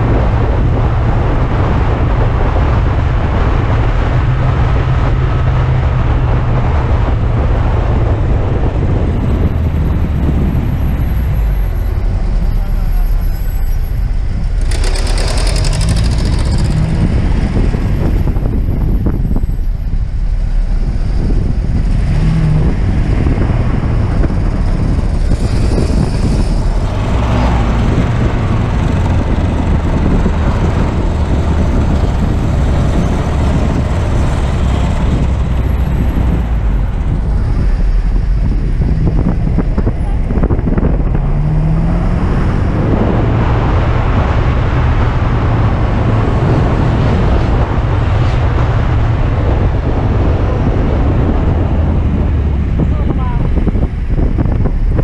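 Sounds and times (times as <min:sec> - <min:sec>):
car engine: 0:00.0 - 0:55.0
wind and road noise: 0:00.0 - 0:55.0.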